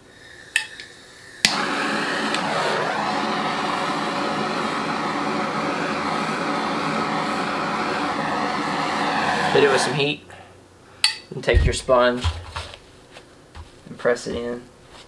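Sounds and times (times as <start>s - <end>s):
torch flame hissing: 1.4s - 10.2s.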